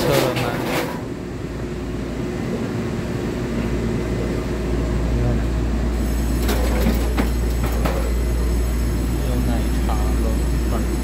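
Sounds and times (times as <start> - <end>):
electric train rumbling: 0.0 - 11.0.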